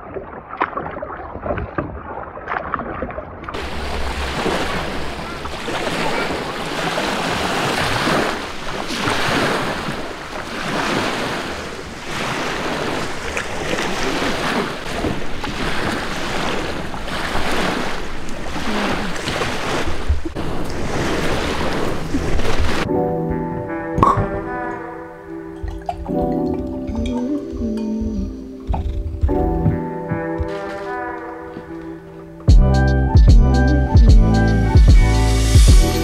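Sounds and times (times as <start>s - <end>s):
waves washing onto gravel: 3.6s - 22.9s.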